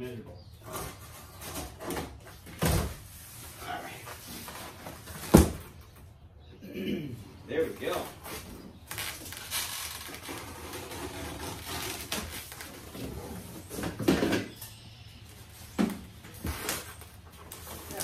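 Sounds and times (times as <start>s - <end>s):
cardboard flaps rustling and scraping: 7.8s - 14.6s, 15.4s - 18.0s.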